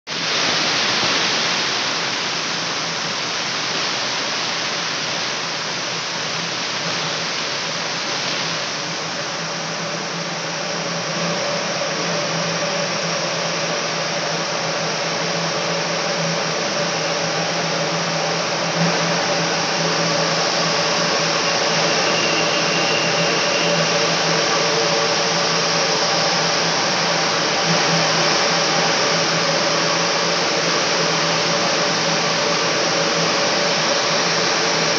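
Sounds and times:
whirr of spinning spindles: 0:09.4 - 0:34.9.

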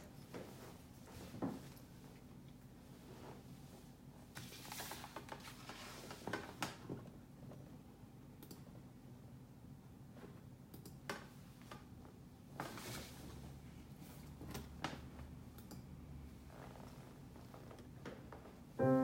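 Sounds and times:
faint low hum: 0:06.8 - 0:19.0
piano keys clacking: 0:18.8 - 0:19.0.

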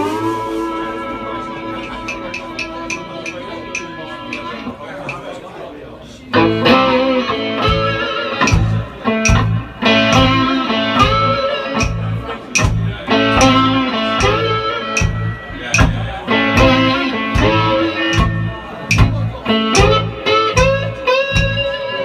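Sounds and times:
live blues band playing: 0:00.0 - 0:05.4, 0:06.3 - 0:22.0
steady drum beat: 0:06.5 - 0:21.8.

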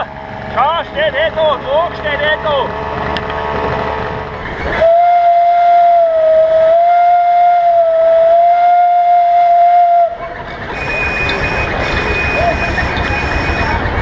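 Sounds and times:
steam whistle blast: 0:04.8 - 0:13.8.

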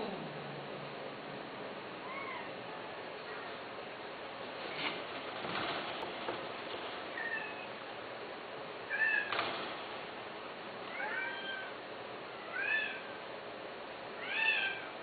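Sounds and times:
cat meowing: 0:02.0 - 0:02.6, 0:07.1 - 0:07.8, 0:08.9 - 0:09.3, 0:10.9 - 0:11.8, 0:12.4 - 0:13.2, 0:14.2 - 0:14.9.

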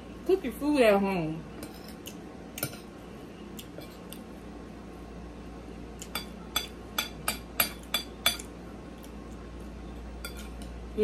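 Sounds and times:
metal fork tapping a plate: 0:06.0 - 0:08.5.

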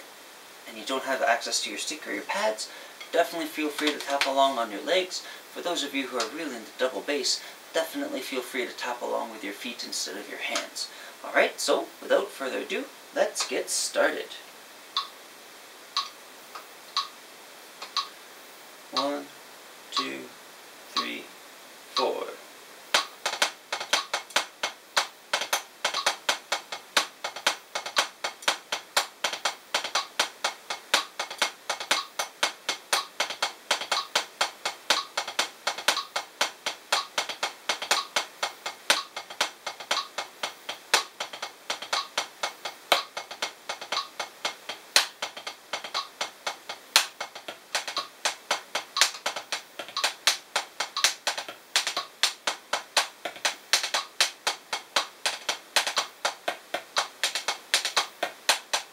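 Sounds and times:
drumsticks tapping practice pad: 0:01.8 - 0:07.0, 0:10.4 - 0:10.8, 0:13.2 - 0:14.0, 0:15.0 - 0:15.2, 0:16.0 - 0:17.2, 0:17.8 - 0:18.2, 0:18.9 - 0:19.3, 0:20.0 - 0:20.2, 0:22.9 - 0:58.9.

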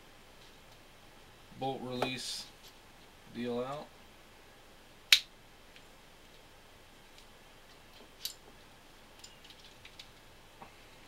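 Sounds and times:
metallic clicks of small steel parts: 0:07.1 - 0:08.4, 0:09.1 - 0:10.2.

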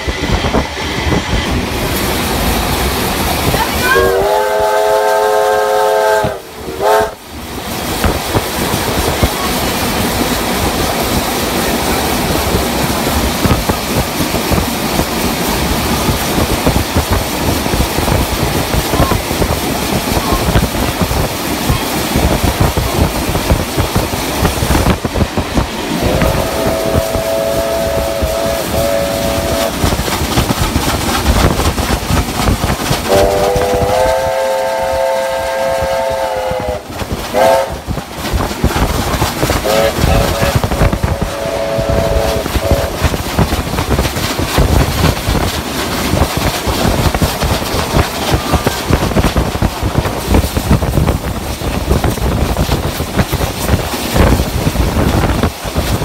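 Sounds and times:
steam locomotive rumbling and clattering: 0:00.0 - 0:56.0
steam locomotive chime whistle: 0:03.8 - 0:07.2, 0:26.0 - 0:29.8, 0:33.1 - 0:37.8, 0:39.6 - 0:42.9.

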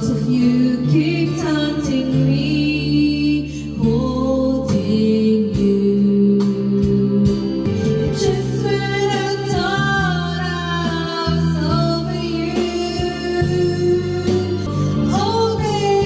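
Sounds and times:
backing track music: 0:00.0 - 0:16.0
woman singing into microphone: 0:00.0 - 0:16.0.

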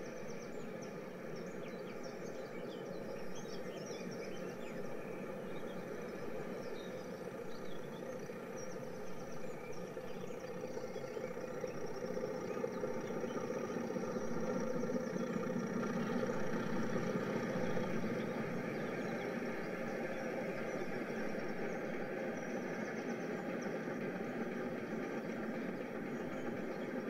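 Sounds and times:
faint birdsong: 0:00.0 - 0:27.0
diesel locomotive engine running: 0:00.1 - 0:27.0.

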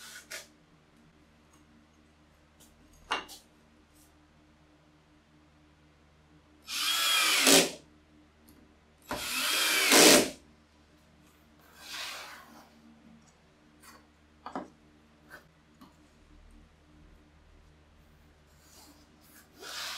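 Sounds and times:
cordless drill driving screws: 0:06.7 - 0:07.7, 0:09.2 - 0:10.3.

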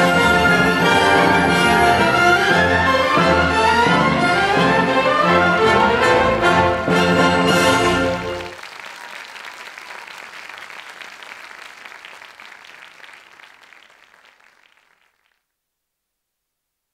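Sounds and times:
orchestral music final chord: 0:00.0 - 0:08.6
audience applauding: 0:03.8 - 0:15.4.

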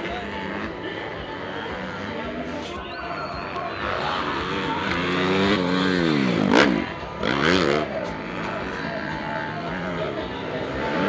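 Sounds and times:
motocross bike revving past: 0:00.0 - 0:11.0.

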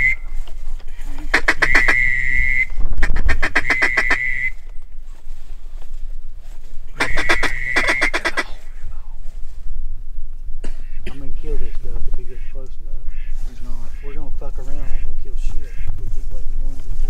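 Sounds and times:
duck whistle blown: 0:00.0 - 0:00.4, 0:01.3 - 0:04.7, 0:07.0 - 0:08.5.

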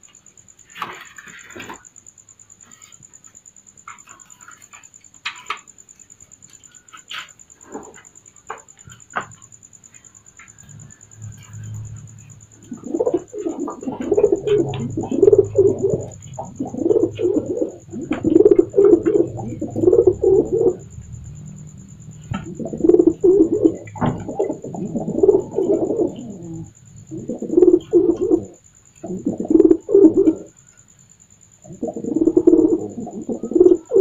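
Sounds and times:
pigeon cooing: 0:10.6 - 0:30.6, 0:31.6 - 0:34.0.

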